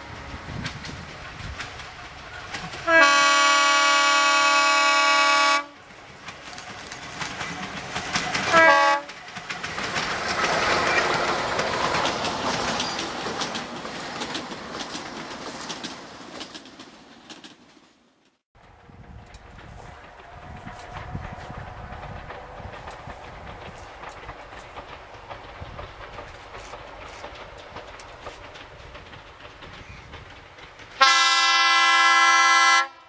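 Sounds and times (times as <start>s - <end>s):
train wheels clicking over rail joints: 0.0s - 32.6s
diesel locomotive horn blasts: 2.8s - 5.8s, 8.5s - 9.1s, 31.0s - 33.0s.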